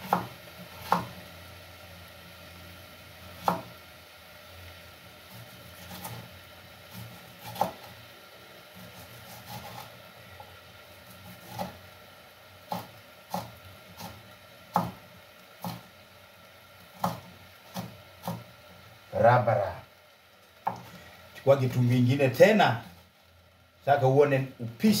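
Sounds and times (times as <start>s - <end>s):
knife chopping on wooden board: 0.0s - 1.2s, 3.4s - 3.7s, 6.9s - 7.9s, 11.2s - 11.8s, 12.7s - 15.0s, 15.6s - 15.8s, 17.0s - 18.5s.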